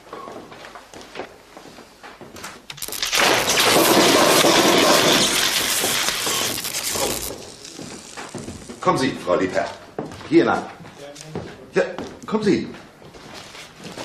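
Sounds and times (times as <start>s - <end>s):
glass shattering: 2.7s - 8.3s.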